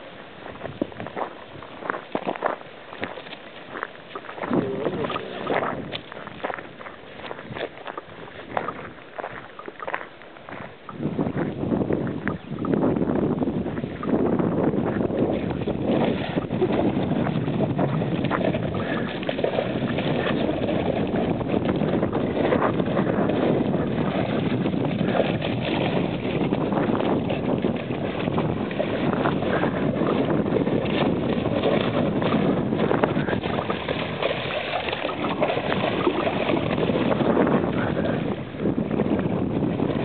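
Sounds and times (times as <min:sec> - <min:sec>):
wind on microphone: 0:00.0 - 0:40.0
dog splashing in water: 0:15.4 - 0:38.3.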